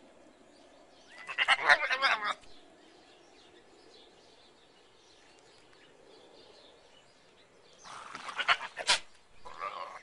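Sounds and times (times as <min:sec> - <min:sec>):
goat bleating: 0:08.3 - 0:10.0.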